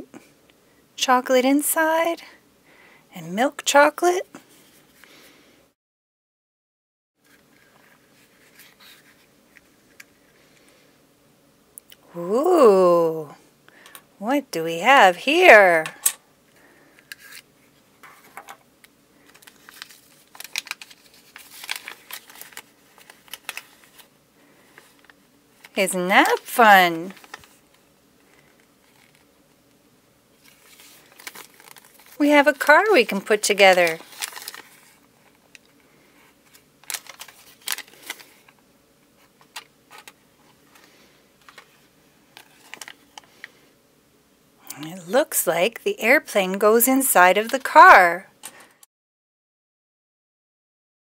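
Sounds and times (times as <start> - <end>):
plastic bag crinkling: 19.2 - 29.3, 30.4 - 35.8, 36.4 - 38.6, 39.4 - 43.6
paper leaflet unfolding: 19.3 - 24.1, 30.4 - 32.2, 33.8 - 35.0, 36.5 - 38.5.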